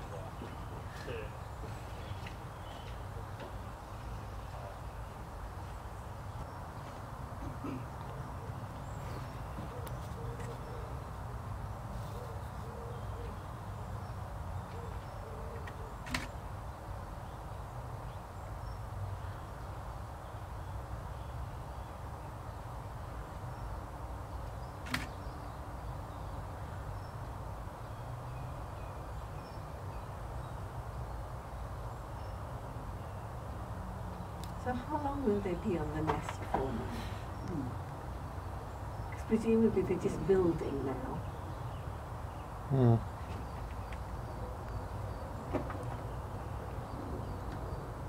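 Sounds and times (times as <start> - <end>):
distant bird calls: 0.0 - 48.0
low outdoor rumble: 31.2 - 48.0.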